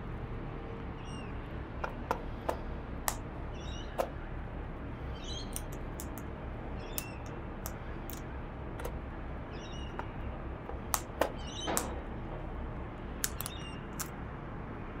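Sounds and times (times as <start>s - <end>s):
high bird chirps: 1.0s - 2.6s, 3.5s - 4.3s, 5.1s - 6.2s, 6.8s - 8.9s, 9.5s - 12.0s, 13.3s - 14.1s
beak clicking on seed dish: 5.5s - 6.3s, 6.9s - 8.2s, 13.2s - 14.1s.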